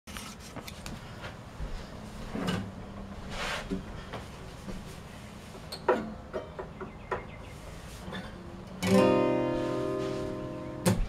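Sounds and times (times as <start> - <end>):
acoustic guitar handling knocks: 5.8 - 7.4, 8.1 - 11.0
short rustles: 9.3 - 10.8.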